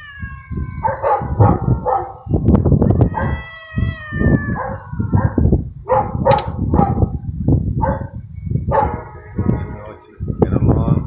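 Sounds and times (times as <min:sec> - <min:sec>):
cats yowling: 0:00.0 - 0:05.5
wind rumbling on microphone: 0:00.0 - 0:11.0.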